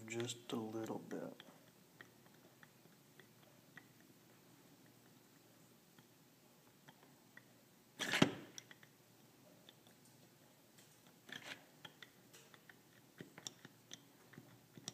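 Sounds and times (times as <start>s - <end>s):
metallic clicks and scrapes: 9.6s - 14.9s.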